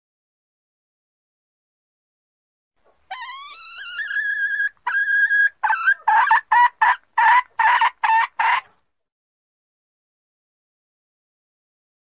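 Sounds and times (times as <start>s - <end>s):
harsh clucks: 3.0s - 8.8s
hen calling: 3.1s - 8.7s.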